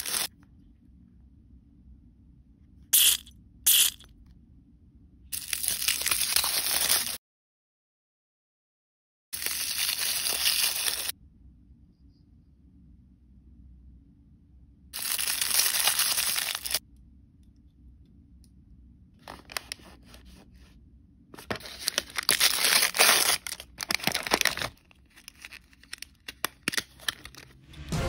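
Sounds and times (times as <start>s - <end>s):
foil crinkling: 0.0s - 0.3s, 5.4s - 7.2s, 9.4s - 11.1s, 15.0s - 16.8s, 19.2s - 20.4s, 21.4s - 27.6s
foil packaging tearing: 0.0s - 0.3s, 5.4s - 7.2s, 9.4s - 11.1s, 15.0s - 16.8s, 21.4s - 27.6s
sharp plastic crackles: 21.4s - 27.6s.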